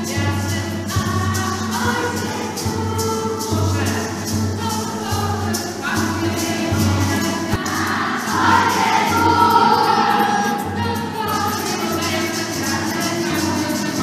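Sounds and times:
backing music: 0.0 - 14.0
children singing: 0.0 - 14.0.

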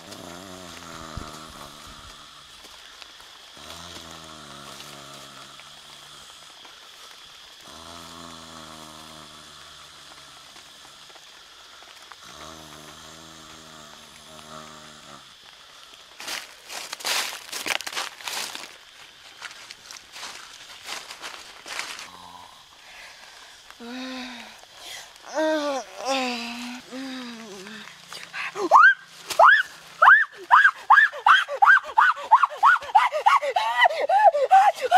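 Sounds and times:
man snoring: 0.0 - 2.4, 3.6 - 6.2, 7.6 - 10.6, 12.2 - 15.3.

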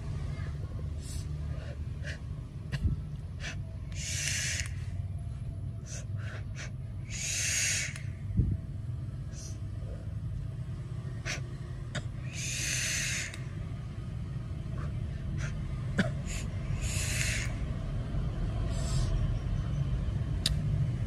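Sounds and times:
steady low hum: 0.0 - 21.0
person exhaling vape: 16.3 - 17.6.

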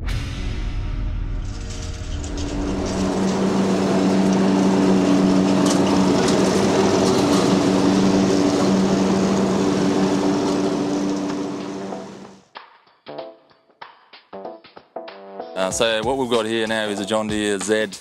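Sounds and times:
lawn mower engine running: 1.9 - 12.4.

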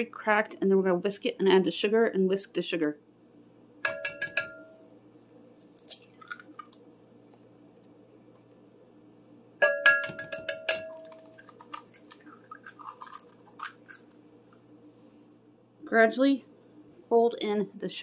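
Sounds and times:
egg knocking on glass bowl: 3.8 - 4.8, 9.6 - 11.8
eggshell crackling: 5.1 - 7.1, 10.0 - 14.7.

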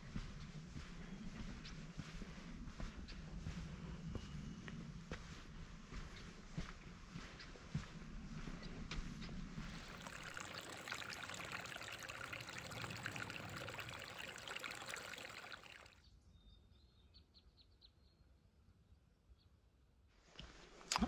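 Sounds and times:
creek babbling over rocks: 9.9 - 16.0.

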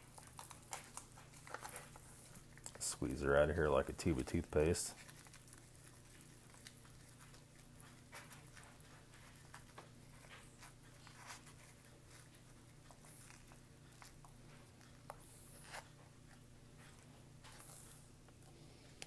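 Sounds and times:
foil pouch crinkling: 0.0 - 15.0
low steady hum: 0.0 - 19.0.

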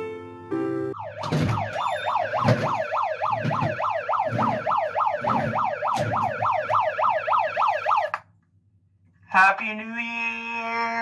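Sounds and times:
megaphone siren wailing: 0.9 - 8.2.

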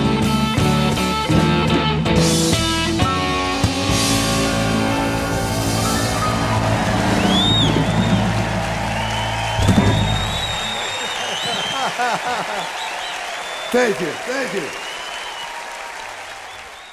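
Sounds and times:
blues band playing: 0.0 - 10.8
high whistle: 5.8 - 11.8, 14.7 - 15.6.

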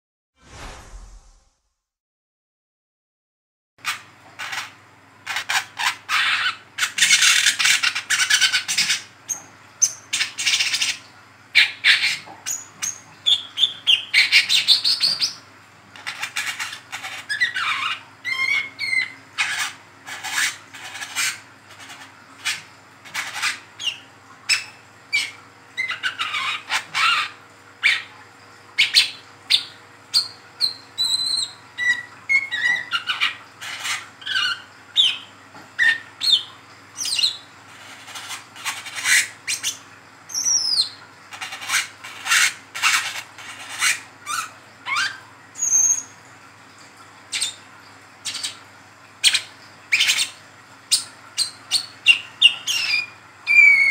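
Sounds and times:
bird twittering high chirps: 28.8 - 37.4, 43.8 - 46.1.

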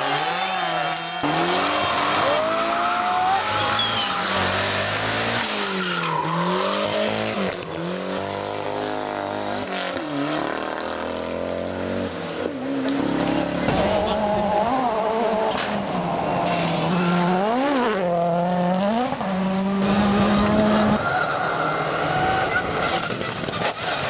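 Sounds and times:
rally car engine revving: 0.0 - 24.0
tyre squeal: 0.2 - 4.7, 5.4 - 7.0, 9.3 - 10.1.

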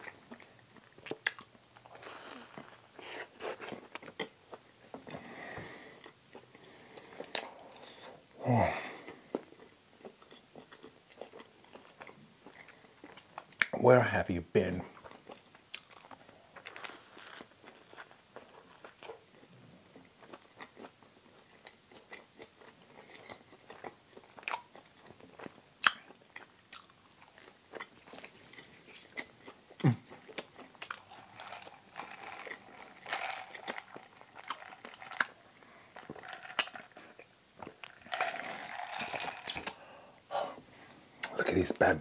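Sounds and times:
person chewing: 0.0 - 5.3, 5.9 - 8.1, 8.9 - 13.8, 15.0 - 40.1
mouth clicks: 39.4 - 39.8.

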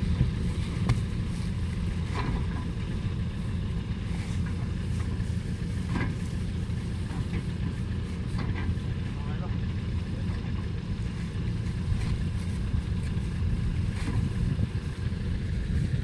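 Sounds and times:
combine harvester engine rumbling: 0.0 - 16.0.

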